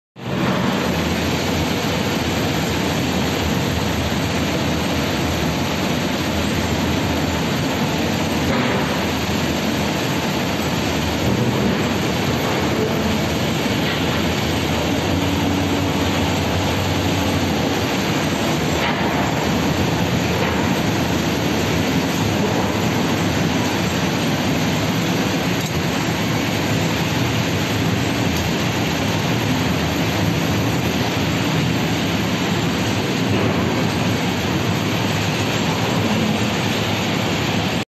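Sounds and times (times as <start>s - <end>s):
foundry machine noise: 0.2s - 37.8s.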